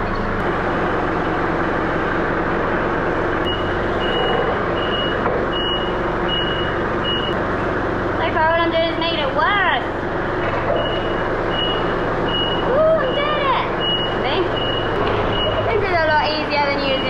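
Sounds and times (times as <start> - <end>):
forklift engine running: 0.0 - 17.0
reversing alarm beeps: 3.4 - 7.4, 10.7 - 15.7.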